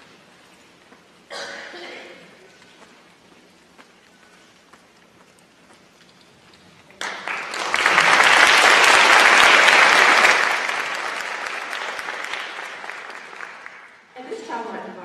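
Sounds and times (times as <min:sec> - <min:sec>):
audience applauding: 0:07.0 - 0:14.1.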